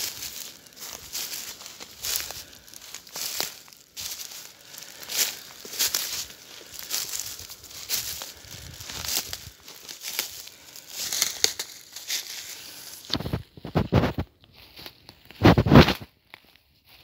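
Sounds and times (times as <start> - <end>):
footsteps crunching dry leaves: 0.0 - 17.0.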